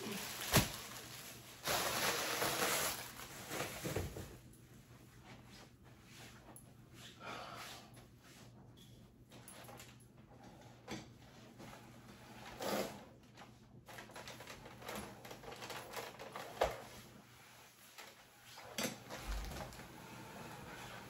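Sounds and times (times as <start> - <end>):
rustling and shuffling: 0.0 - 7.2.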